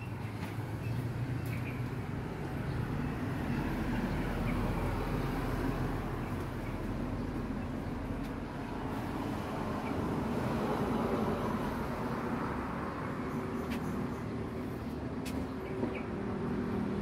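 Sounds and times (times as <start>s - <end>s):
city traffic rumble: 0.0s - 17.0s.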